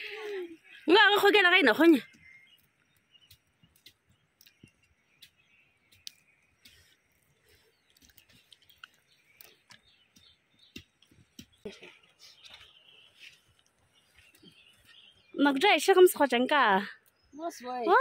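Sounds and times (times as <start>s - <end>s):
faint clicks: 2.0s - 6.9s.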